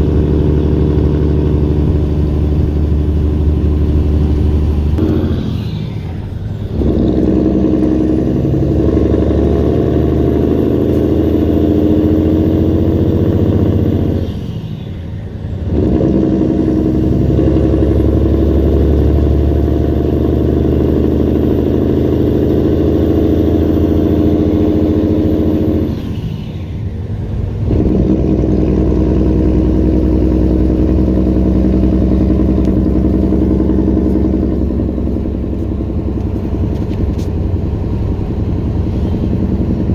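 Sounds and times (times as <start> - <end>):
truck diesel engine through gears: 0.0 - 39.9
faint high whine: 4.3 - 6.8.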